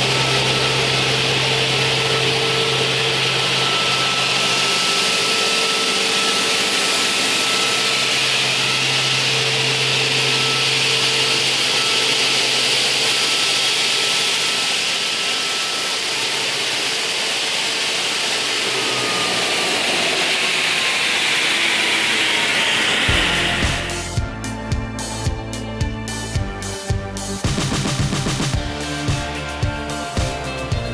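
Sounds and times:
saw running with loud whir: 0.0s - 30.9s.

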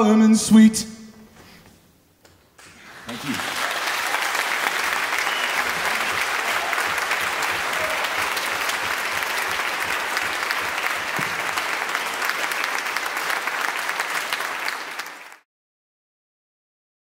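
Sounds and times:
audience applauding: 2.6s - 15.5s.

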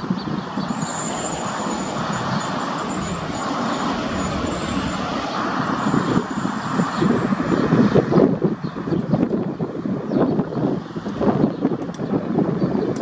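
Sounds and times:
train wheels rumbling on rails: 0.0s - 8.2s.

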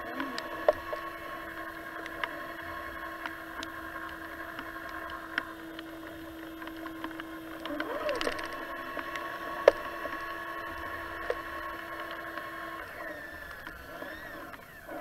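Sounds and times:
electric motor whine: 0.0s - 15.0s
faint ticks: 0.0s - 15.0s.

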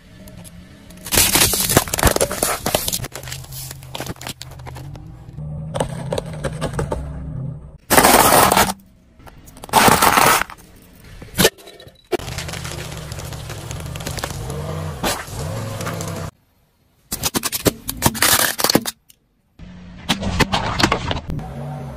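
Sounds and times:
loud cracks and crunches: 1.0s - 5.0s, 7.8s - 8.8s, 9.6s - 10.6s, 12.2s - 16.4s, 17.1s - 19.1s
tyre crushing objects: 7.8s - 8.8s, 9.6s - 10.6s, 12.2s - 16.3s.

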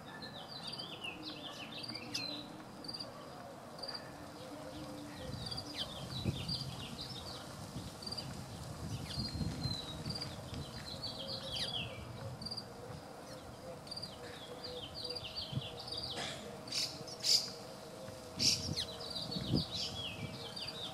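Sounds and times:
small birds chirping: 0.0s - 20.9s.

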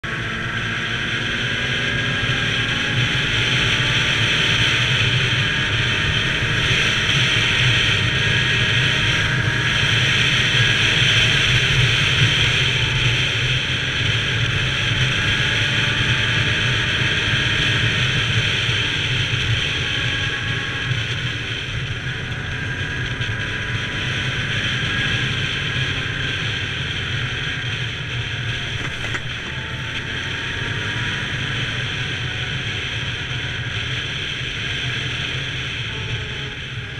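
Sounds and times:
atv engine running: 0.0s - 36.9s
tyres on gravel road: 24.5s - 36.9s.

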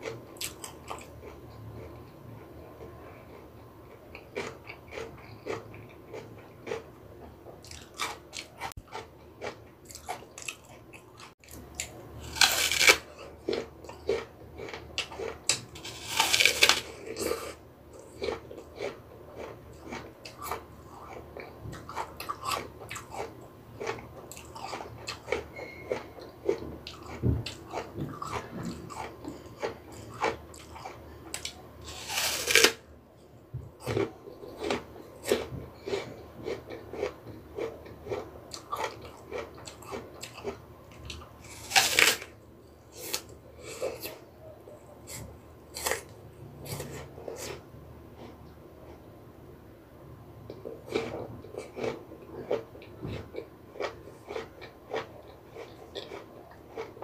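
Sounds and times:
close-up chewing: 0.0s - 32.7s, 33.8s - 42.2s, 50.5s - 57.0s
crunchy apple bites: 7.6s - 32.8s, 33.8s - 44.2s.

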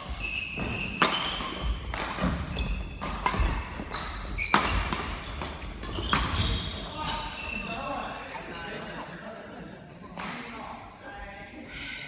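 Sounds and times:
racket hitting shuttlecock: 0.0s - 6.6s
shoes squeaking on floor: 0.0s - 8.0s.

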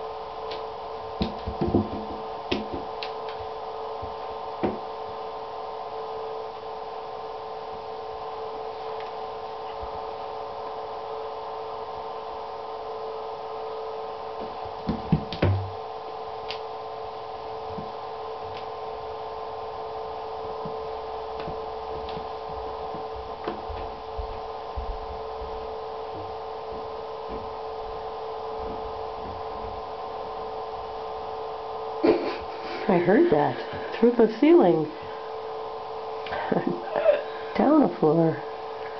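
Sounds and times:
steady multi-tone hum: 0.0s - 38.9s
ball knocking in acrylic tub: 1.2s - 2.9s.

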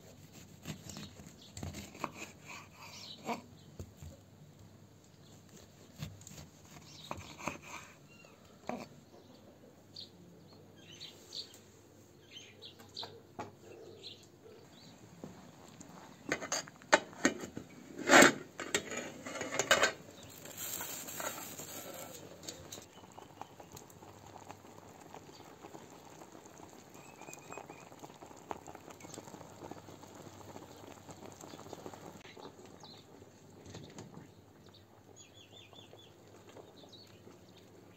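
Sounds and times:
metal pot lid clattering: 16.3s - 20.0s
steaming pot hissing: 20.1s - 32.2s.

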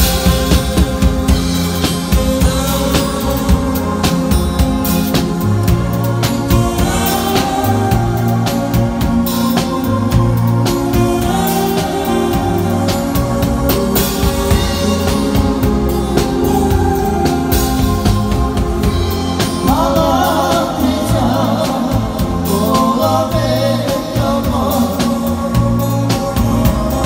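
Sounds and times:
bass line: 0.0s - 27.0s
drum kit beat: 0.0s - 27.0s
live band music: 0.0s - 27.0s
man singing amplified: 1.9s - 27.0s.

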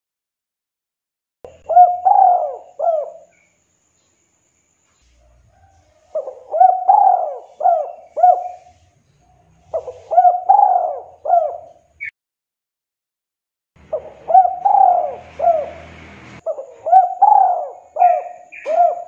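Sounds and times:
dove cooing: 1.5s - 3.3s, 5.2s - 12.0s, 13.8s - 19.0s.

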